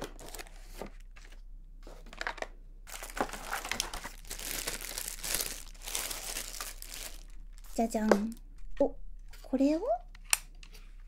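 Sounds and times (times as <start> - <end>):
wrapping crinkling: 0.0 - 1.4, 2.0 - 8.0.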